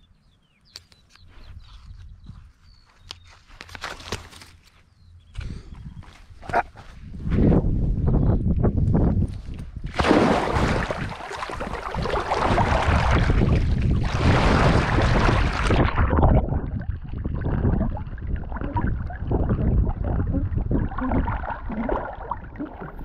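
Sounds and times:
camera rustling and jostling: 0.7s - 5.0s
wind buffeting microphone: 5.4s - 23.0s.

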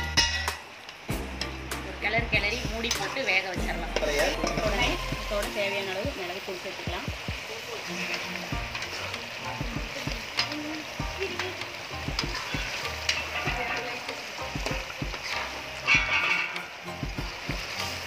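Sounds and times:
chicken sizzling in a pan: 0.0s - 18.0s
metal spatula scraping a pan: 7.8s - 9.5s, 11.5s - 17.0s.

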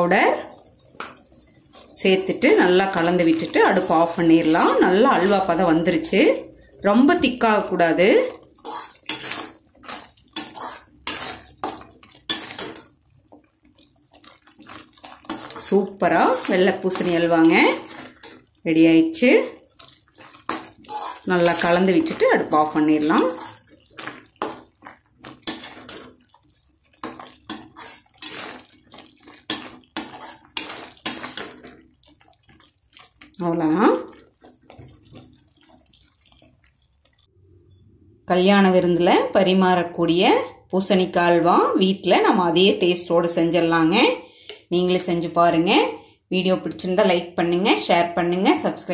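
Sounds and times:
spatula scraping thick halwa: 8.6s - 12.8s, 15.1s - 18.5s, 19.8s - 22.4s, 23.2s - 26.2s, 27.0s - 31.7s.

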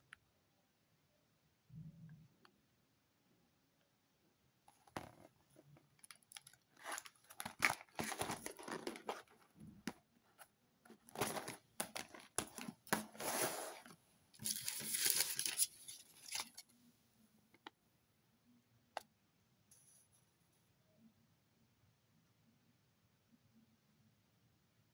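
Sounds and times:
paper crinkling: 6.0s - 9.6s, 10.9s - 16.7s
cardboard boxes rustling and knocking: 6.8s - 9.4s.

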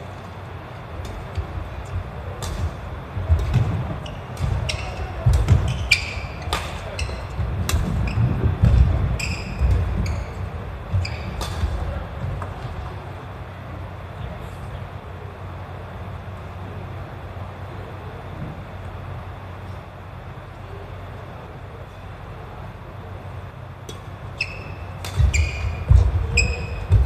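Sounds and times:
rackets striking shuttlecock: 1.0s - 12.6s, 23.8s - 27.0s
shoe squeaks on court: 9.1s - 10.4s, 11.0s - 11.5s, 24.4s - 27.0s.

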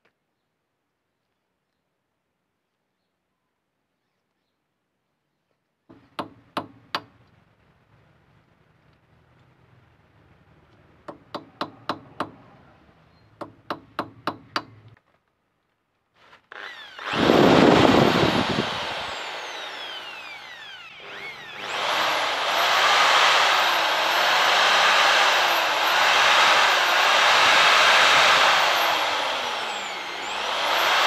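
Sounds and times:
electric drill running: 16.5s - 31.0s.

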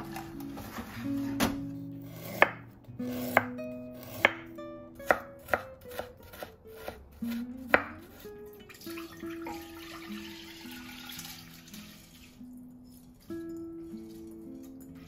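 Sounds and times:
knife chopping on wooden board: 0.0s - 8.2s.

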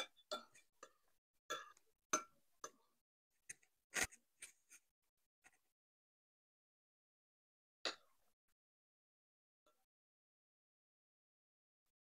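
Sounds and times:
cutlery clinking on ceramic bowls: 0.0s - 2.8s.

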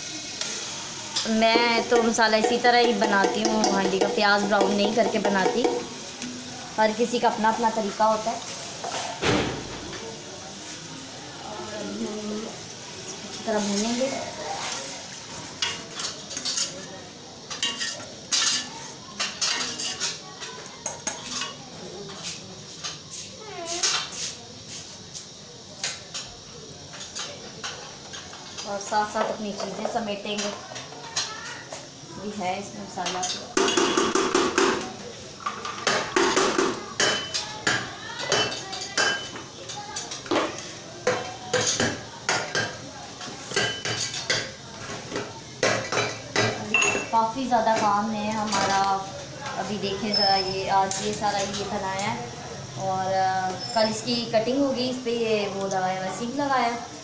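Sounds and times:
food frying in oil: 0.0s - 57.0s
metal utensils and dishes clinking: 13.4s - 24.3s, 25.8s - 31.8s, 32.9s - 52.2s.

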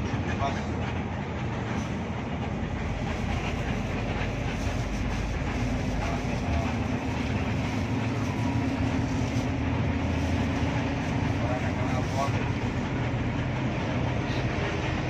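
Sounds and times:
bus engine and road rumble: 0.0s - 15.0s
engine hum: 0.0s - 15.0s.

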